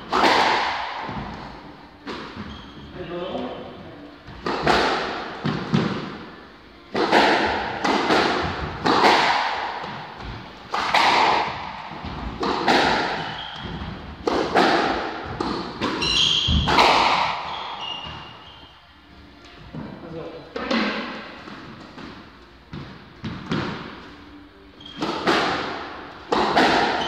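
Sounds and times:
squash ball cracks: 0:00.0 - 0:01.1, 0:04.3 - 0:06.3, 0:06.9 - 0:17.5, 0:25.0 - 0:27.0
shoes squeaking on wooden floor: 0:01.0 - 0:03.6, 0:11.6 - 0:14.2, 0:15.2 - 0:18.9, 0:24.8 - 0:25.2.

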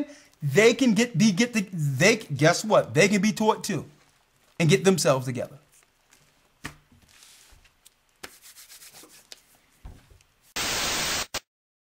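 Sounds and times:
rustling of book pages: 0:03.9 - 0:10.6
burst of hiss-like noise: 0:10.5 - 0:11.5.

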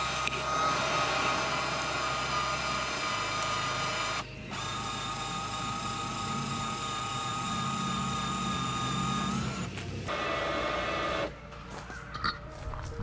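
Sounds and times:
electric jack motors whining: 0:00.0 - 0:11.5.

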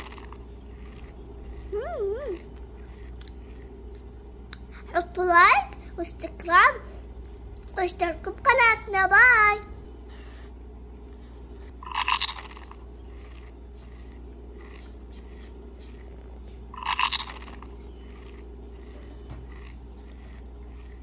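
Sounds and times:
child chewing: 0:00.0 - 0:05.0, 0:09.9 - 0:21.0
steady low hum: 0:00.0 - 0:21.0.

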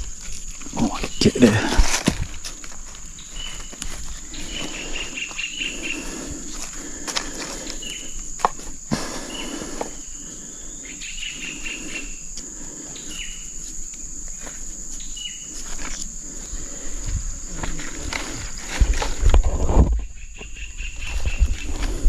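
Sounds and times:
insect drone: 0:00.0 - 0:22.0
short insect chirps: 0:07.5 - 0:22.0.

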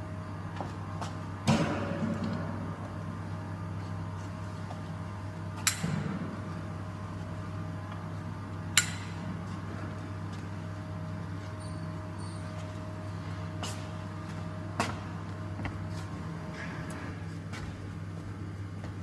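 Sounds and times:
low machinery hum: 0:00.0 - 0:19.0.

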